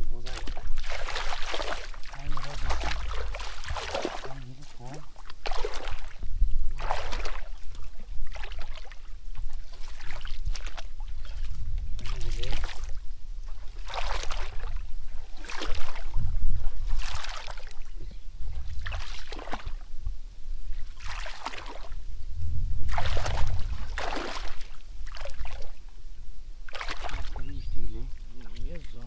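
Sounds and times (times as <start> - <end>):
hands squelching in wet mud: 0.2 - 13.0, 13.6 - 16.2, 16.8 - 17.9, 18.6 - 19.8, 20.9 - 22.0, 22.9 - 25.7, 26.7 - 27.5.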